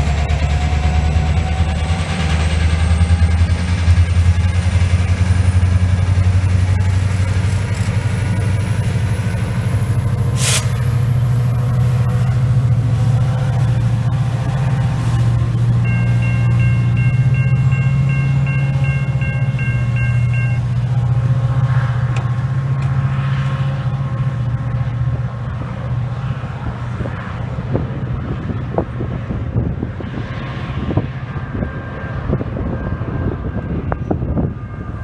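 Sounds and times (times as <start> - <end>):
diesel locomotive engine drone: 0.0 - 35.0
brief high hiss: 10.4 - 10.8
level-crossing bell ringing: 15.7 - 20.8.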